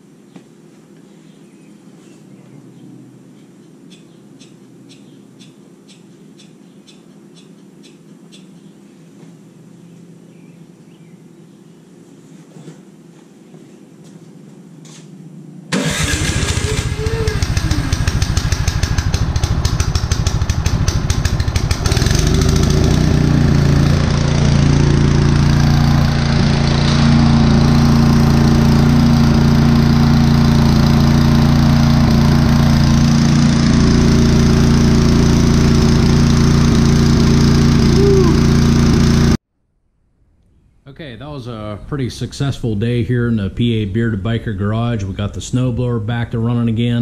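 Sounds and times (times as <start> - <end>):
snow blower engine running: 15.7 - 39.4.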